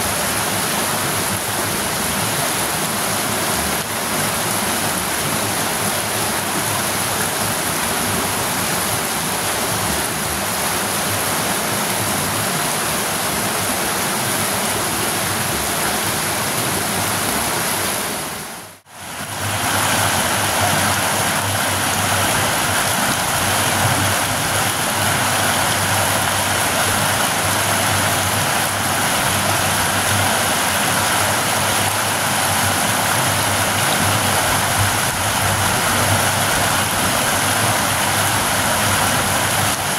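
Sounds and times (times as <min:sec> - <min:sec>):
water rushing over rocks: 0:00.0 - 0:39.9
water pouring from culvert pipe: 0:18.8 - 0:39.9.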